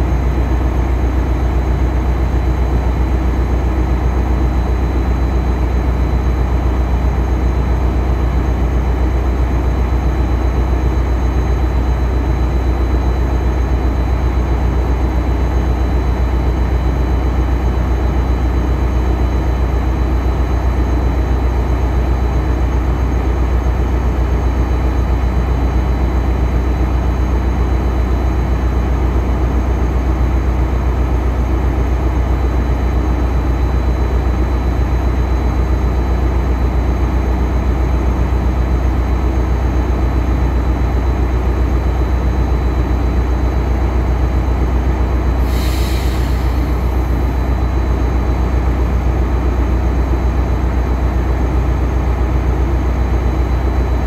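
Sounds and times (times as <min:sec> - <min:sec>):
locomotive engine drone: 0:00.0 - 0:54.0.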